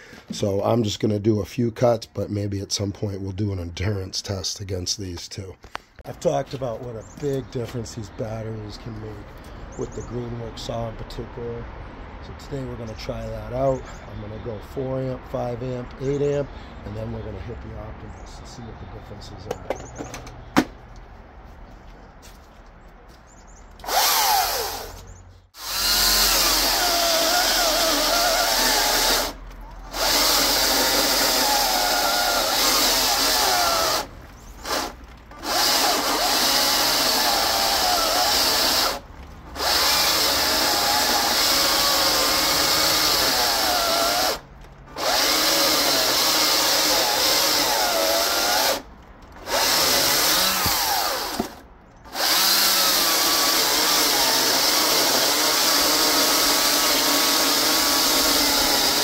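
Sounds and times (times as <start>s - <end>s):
electric chainsaw cutting log: 23.8s - 25.0s, 25.6s - 59.0s.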